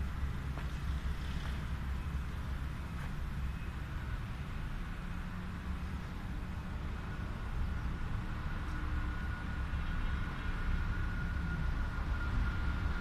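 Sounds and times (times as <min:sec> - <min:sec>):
thin steady whine: 0:00.0 - 0:13.0.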